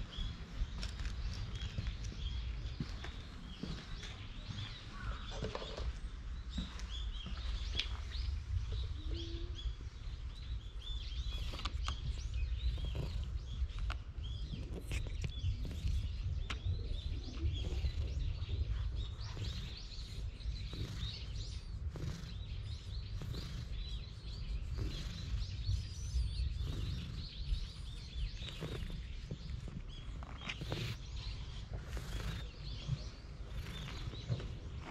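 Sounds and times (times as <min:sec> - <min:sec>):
small birds chirping: 0:00.0 - 0:34.9
steady low rumble: 0:00.0 - 0:34.9
hand stroking cat fur: 0:19.4 - 0:31.0, 0:31.8 - 0:32.5.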